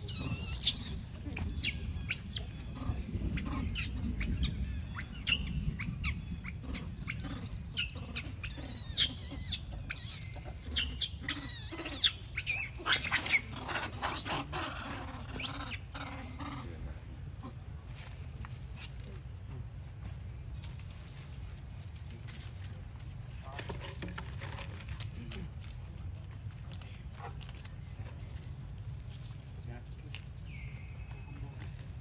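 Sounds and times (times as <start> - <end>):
monkey screaming: 0.0 - 16.8.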